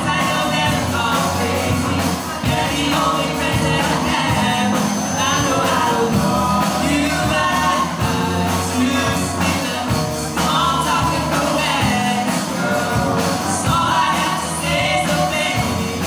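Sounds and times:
drum kit: 0.0s - 16.0s
electric guitars: 0.0s - 16.0s
keyboard: 0.0s - 16.0s
person singing: 0.0s - 16.0s.

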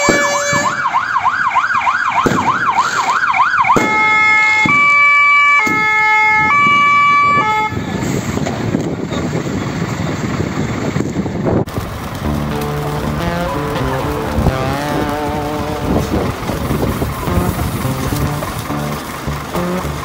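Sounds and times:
fire engine siren wailing: 0.0s - 8.5s, 11.7s - 20.0s
steady rushing noise: 7.8s - 20.0s.

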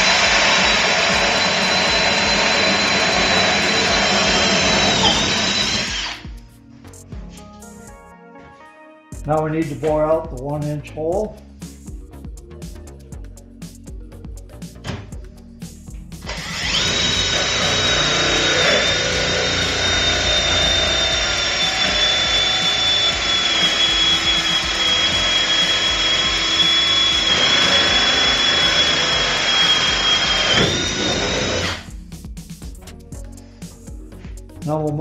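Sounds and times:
cordless drill boring wood: 0.0s - 6.2s, 16.3s - 31.9s.

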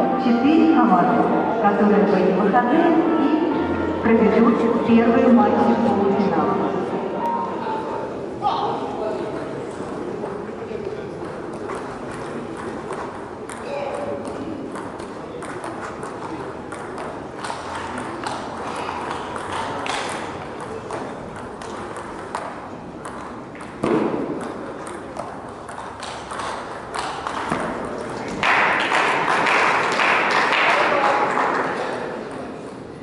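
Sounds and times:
crowd murmur in a hall: 0.0s - 33.0s
table tennis ball clicking: 11.2s - 27.8s.

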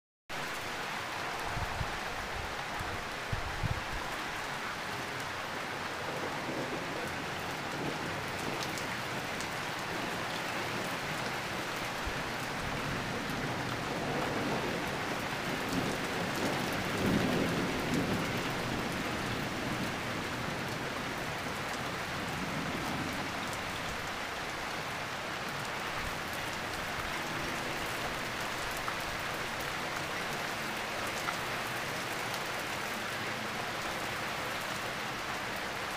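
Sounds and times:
rain falling on deck and leaves: 0.3s - 35.9s
low rumble of thunder: 5.8s - 23.9s.

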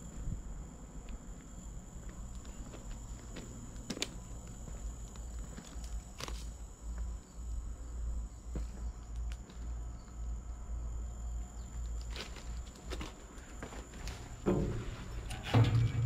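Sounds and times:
footsteps on gravel: 2.1s - 7.1s, 12.0s - 16.0s.

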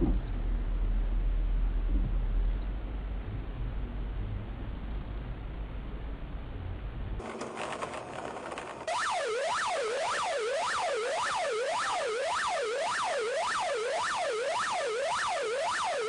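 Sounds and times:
electronic siren yelping: 8.9s - 16.0s.

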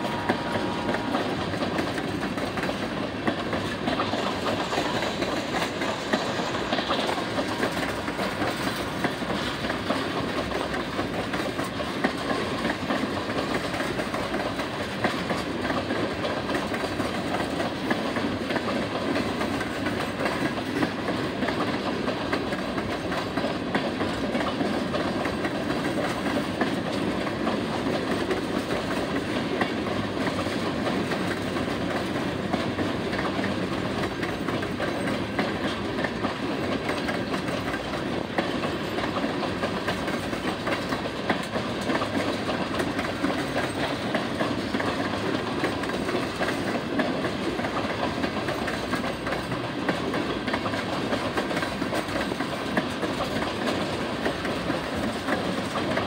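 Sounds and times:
train wheels rumbling on rail: 0.0s - 56.0s.

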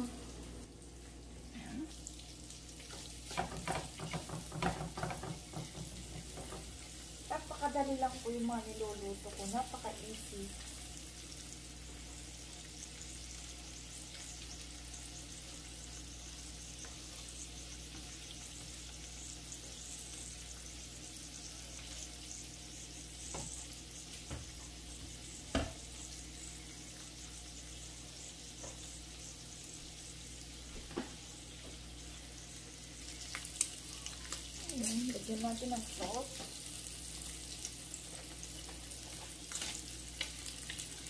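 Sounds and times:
sausage sizzling in oil: 0.0s - 41.0s
spatula knocking against pan: 3.3s - 6.8s.

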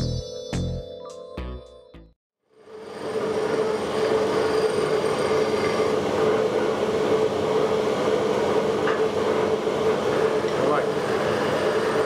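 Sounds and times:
electric air blower running: 2.5s - 12.0s.

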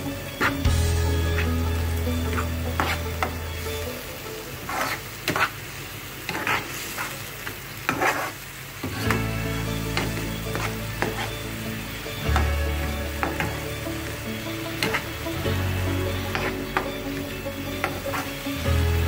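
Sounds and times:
onion masala sizzling: 0.0s - 19.0s
spatula scraping pan: 2.3s - 3.3s, 4.7s - 5.6s, 6.3s - 7.2s, 7.9s - 8.4s, 9.0s - 11.6s, 12.2s - 15.4s, 16.0s - 18.6s.

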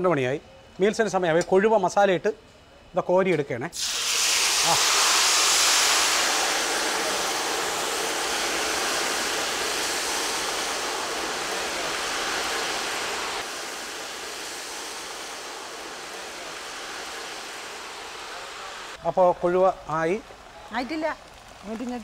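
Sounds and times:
fish deep-frying in oil: 3.8s - 19.0s.

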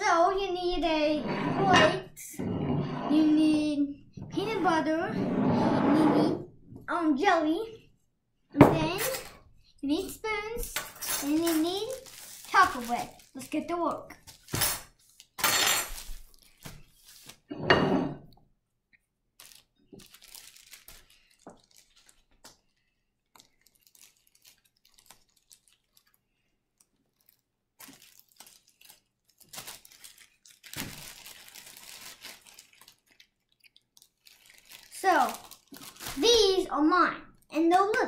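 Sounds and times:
plastic bag crinkling: 11.2s - 17.4s, 19.4s - 36.7s.

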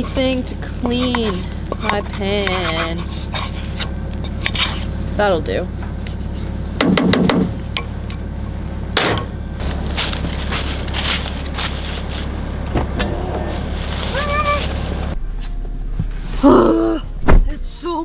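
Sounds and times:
low rumble: 0.0s - 18.0s
quiet hum: 0.0s - 18.0s
footsteps in dry leaves: 9.6s - 15.2s.

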